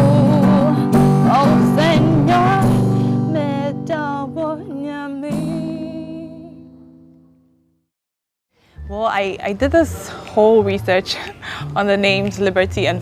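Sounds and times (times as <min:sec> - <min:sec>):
strummed acoustic guitar: 0:00.0 - 0:03.9
woman singing: 0:00.0 - 0:06.6.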